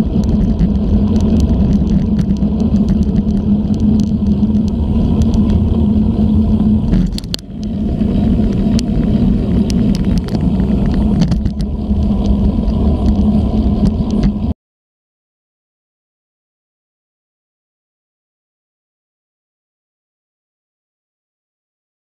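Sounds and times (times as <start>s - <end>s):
bicycle tyre rumble: 0.0s - 14.6s
wind buffeting microphone: 0.0s - 14.6s.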